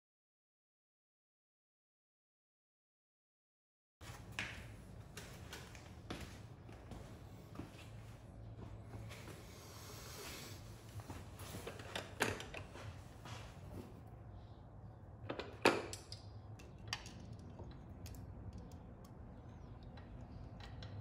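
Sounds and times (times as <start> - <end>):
small metallic clicks and knocks: 15.2 - 21.0.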